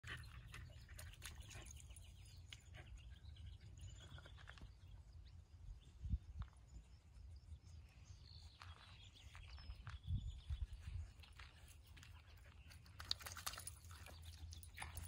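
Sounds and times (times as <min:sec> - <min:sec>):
wind on microphone: 0:05.7 - 0:07.0, 0:09.6 - 0:11.5.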